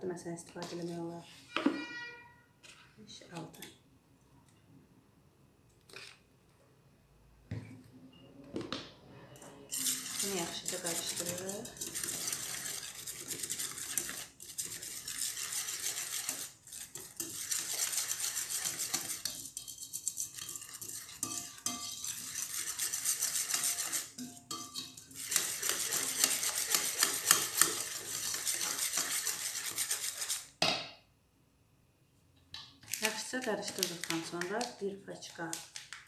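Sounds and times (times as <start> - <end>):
whisk beating in a bowl: 9.7 - 30.5.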